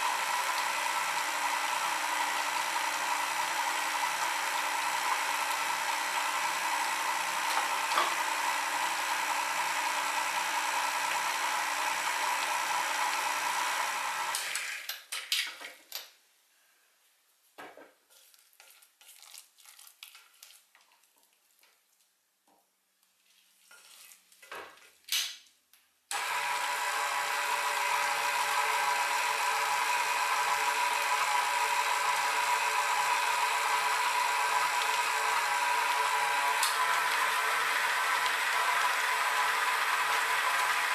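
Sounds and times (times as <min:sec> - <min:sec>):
stand mixer whining: 0:00.0 - 0:14.8, 0:26.1 - 0:40.9
spatula scraping bowl: 0:23.5 - 0:24.4.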